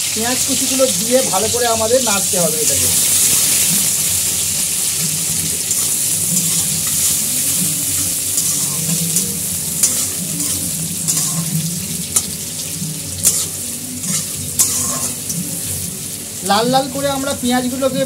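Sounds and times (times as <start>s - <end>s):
onions sizzling in oil: 0.0s - 18.0s
metal spatula scraping pan: 5.6s - 12.4s, 13.2s - 15.7s.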